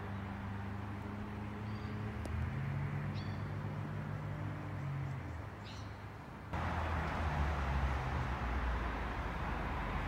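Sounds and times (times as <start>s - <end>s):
low engine hum: 6.4s - 10.0s.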